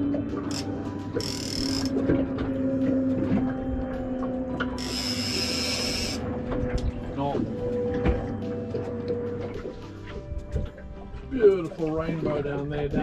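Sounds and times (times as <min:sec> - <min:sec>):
fishing reel whirring: 0:00.4 - 0:02.0, 0:04.7 - 0:06.3.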